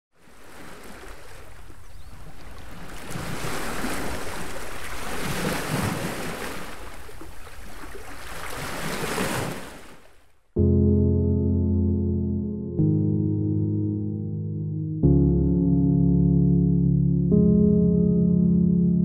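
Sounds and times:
waves washing in: 2.6 - 10.1.

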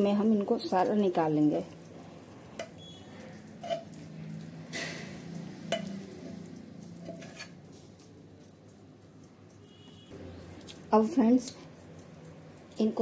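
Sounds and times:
spatula clinking on steel plate: 3.6 - 4.0, 4.7 - 6.0, 7.0 - 7.6.

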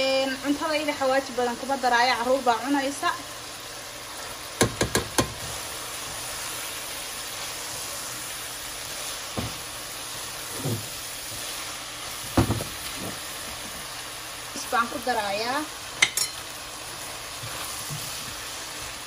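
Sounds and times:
meat and onions sizzling: 0.0 - 19.0
spatula knocking on pan: 4.6 - 5.5, 12.3 - 13.2.

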